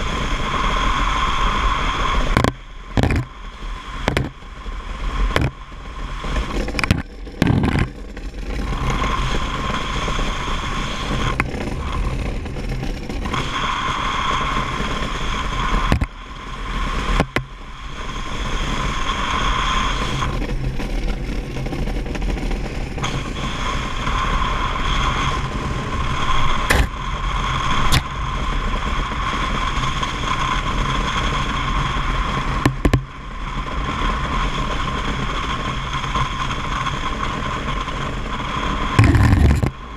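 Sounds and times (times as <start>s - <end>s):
iceboat runners hissing over ice: 0.0s - 39.9s
sharp knocks and clicks: 2.3s - 3.3s, 4.0s - 4.4s, 5.3s - 5.6s, 6.5s - 8.3s, 15.9s - 16.1s, 17.2s - 17.5s, 26.7s - 26.9s, 32.6s - 33.0s, 39.0s - 39.7s.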